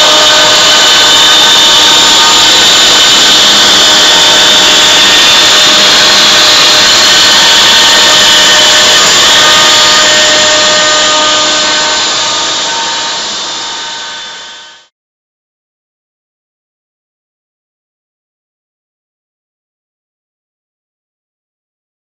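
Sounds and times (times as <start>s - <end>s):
router spindle whine cutting wood: 0.0s - 14.9s.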